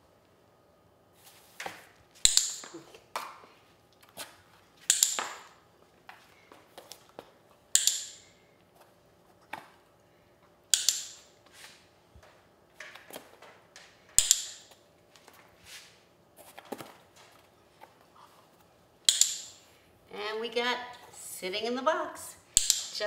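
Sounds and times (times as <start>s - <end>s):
dog-training clicker clicking: 7.8s - 8.2s, 10.7s - 11.2s, 19.1s - 19.5s.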